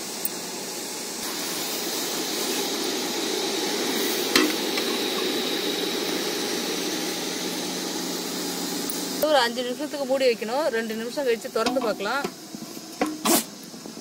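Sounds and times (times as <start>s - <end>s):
syrup boiling and bubbling: 0.6s - 14.0s.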